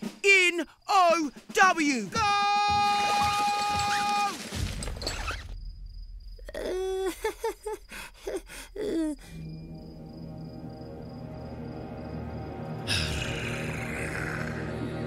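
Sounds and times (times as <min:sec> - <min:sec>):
eerie background music: 0:05.8 - 0:15.0.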